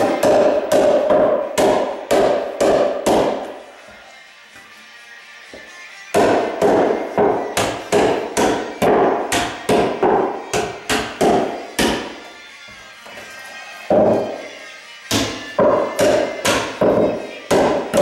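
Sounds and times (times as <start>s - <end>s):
hammer blows on nails: 0.0s - 3.6s, 6.1s - 12.2s, 15.1s - 18.0s.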